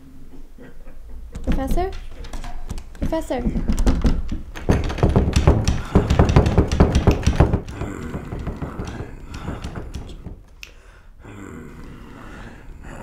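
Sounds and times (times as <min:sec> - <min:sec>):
door knocking in frame: 0:01.3 - 0:10.4
doorknob rattling: 0:01.4 - 0:10.4.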